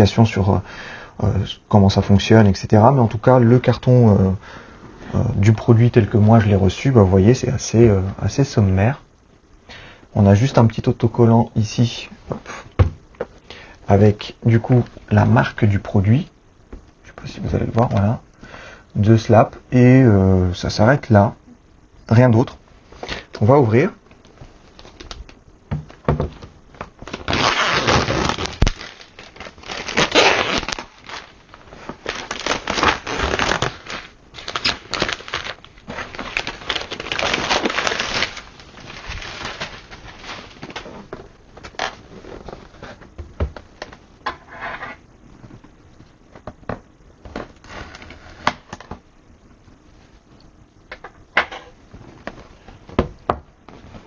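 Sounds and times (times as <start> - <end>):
cardboard rustling: 25.8 - 43.9
tape and cardboard tearing: 27.0 - 31.3, 32.0 - 35.6.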